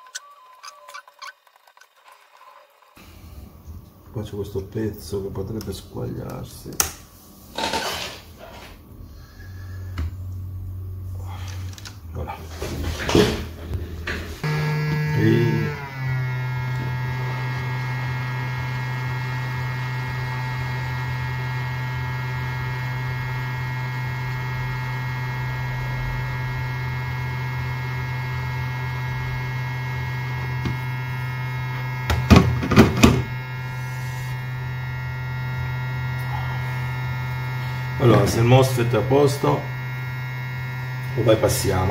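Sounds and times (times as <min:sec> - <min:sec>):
hot air blower humming: 0:12.2 - 0:41.9.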